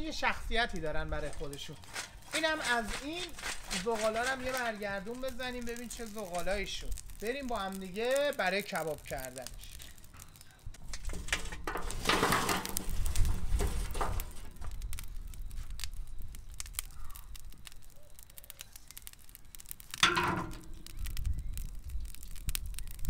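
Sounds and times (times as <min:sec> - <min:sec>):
burning coals crackling: 0:00.0 - 0:23.0
charcoal clattering onto metal: 0:01.2 - 0:07.8, 0:10.8 - 0:14.8, 0:19.9 - 0:20.9.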